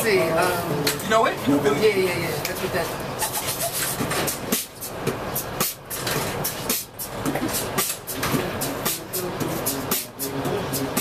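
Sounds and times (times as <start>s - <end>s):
subway train rattling on tracks: 0.0s - 11.0s.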